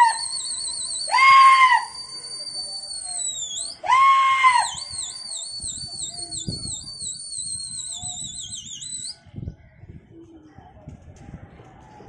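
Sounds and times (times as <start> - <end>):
high shrill wavering whistle: 0.0 - 9.2.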